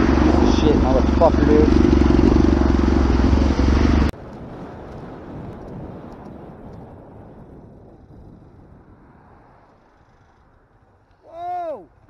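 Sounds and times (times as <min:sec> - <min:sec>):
motorcycle engine idling: 0:00.0 - 0:04.1
wind and road noise: 0:00.0 - 0:12.0.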